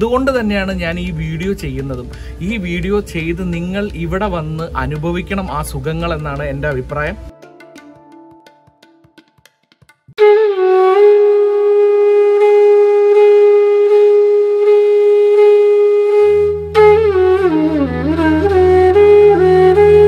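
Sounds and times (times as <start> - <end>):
wind instrument melody: 10.2 - 20.0.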